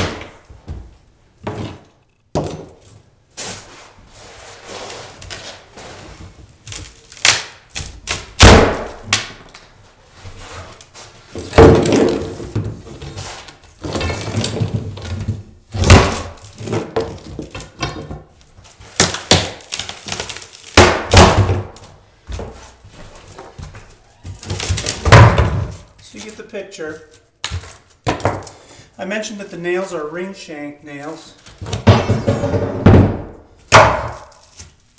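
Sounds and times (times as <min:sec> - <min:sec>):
crunching wood: 0:13.8 - 0:22.5
board cracking and splitting: 0:18.9 - 0:21.8.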